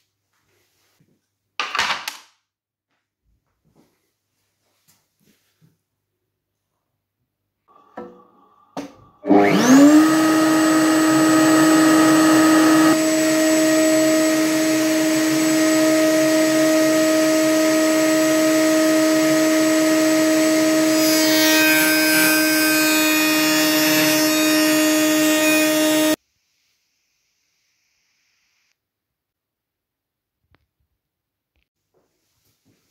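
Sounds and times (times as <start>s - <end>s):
router bit cutting wood: 7.7s - 26.2s
router high whine: 7.7s - 26.2s.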